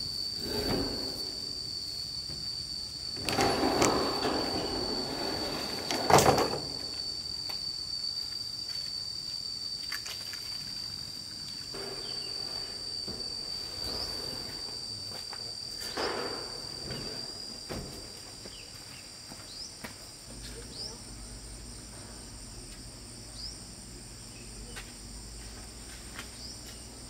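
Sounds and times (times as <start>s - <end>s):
insects droning: 0.0s - 27.0s.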